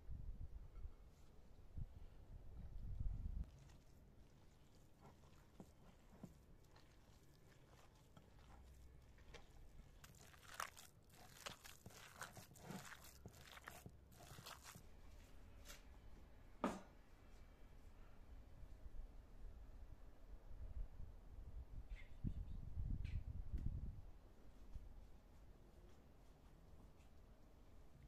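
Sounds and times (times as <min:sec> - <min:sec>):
wet squishing of kneaded meat: 0:02.8 - 0:15.3.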